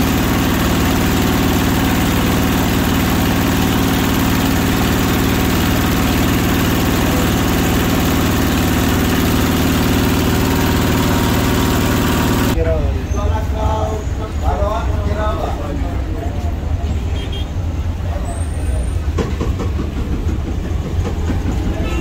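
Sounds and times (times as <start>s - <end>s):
meat grinder motor humming: 0.0s - 12.6s.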